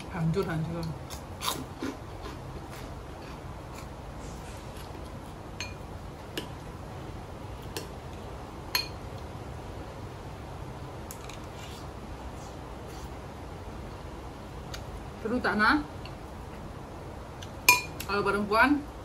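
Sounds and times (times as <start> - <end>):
steady low hiss: 0.0 - 19.0
tableware clinking: 17.7 - 18.0.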